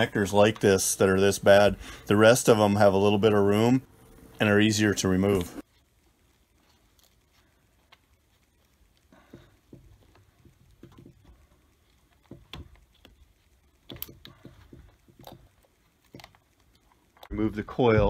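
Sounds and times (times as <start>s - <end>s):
screwdriver clicks and taps: 13.8s - 16.6s
hands handling plastic connector: 13.8s - 17.4s.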